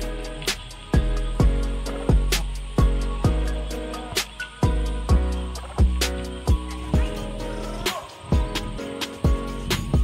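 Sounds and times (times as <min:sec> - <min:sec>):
held chords: 0:00.0 - 0:10.0
hi-hats: 0:00.0 - 0:10.0.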